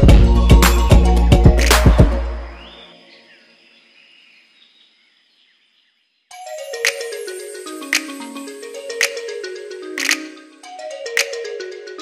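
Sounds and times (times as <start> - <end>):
tinkly melody: 6.3 - 12.0.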